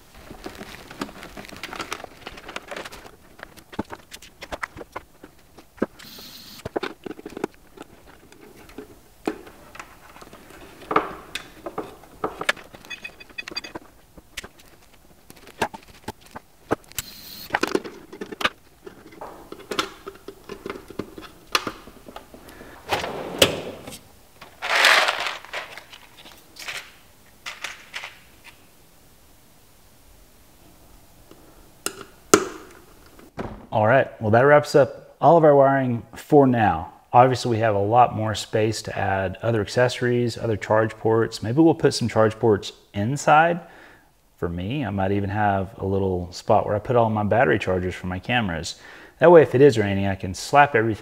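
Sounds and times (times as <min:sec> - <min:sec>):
loud rustling scrape: 0:22.8 - 0:26.3.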